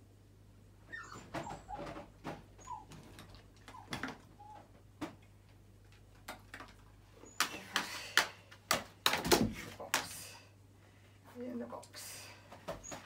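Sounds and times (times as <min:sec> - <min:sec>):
faint dog whimper: 0:00.9 - 0:03.0.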